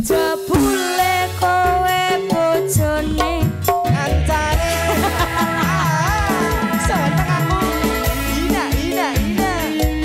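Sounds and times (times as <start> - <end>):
bass: 0.0 - 10.0
hand drums: 0.0 - 10.0
person singing wavering notes: 4.3 - 9.8.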